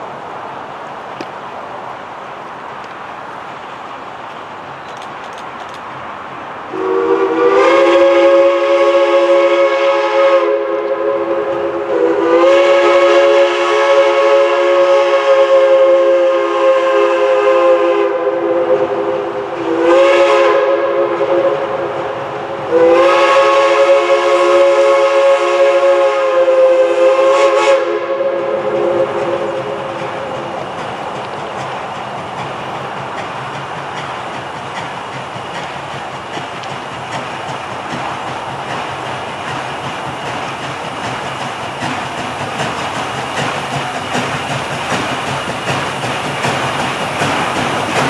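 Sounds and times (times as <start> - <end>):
low running noise of train: 0.0 - 48.0
steam locomotive chime whistle: 6.7 - 30.6.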